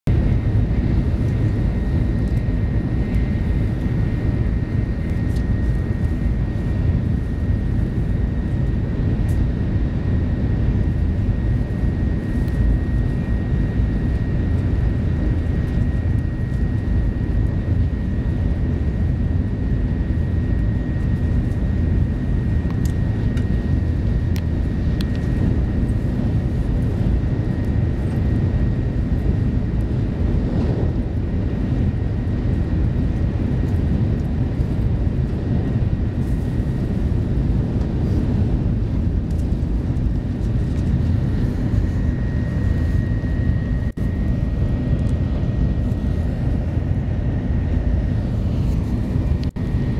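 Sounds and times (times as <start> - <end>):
train cabin deep rumble: 21.0 - 49.9.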